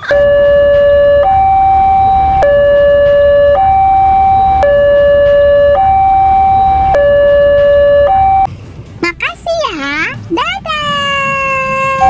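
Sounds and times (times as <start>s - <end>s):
two-tone hi-lo siren: 0.0s - 8.5s.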